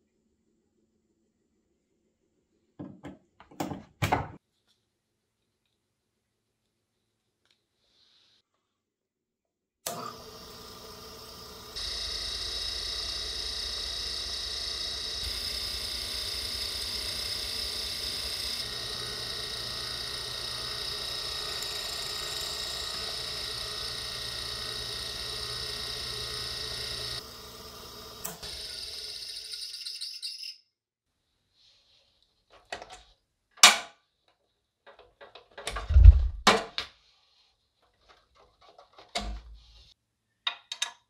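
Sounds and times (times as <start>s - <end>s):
drill press humming and whining: 9.9s - 30.2s.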